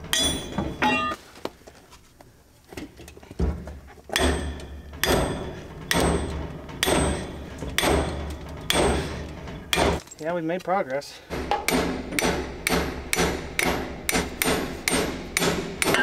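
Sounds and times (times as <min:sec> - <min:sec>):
hammer striking steel: 0:00.0 - 0:01.2, 0:04.1 - 0:10.0, 0:11.3 - 0:16.0.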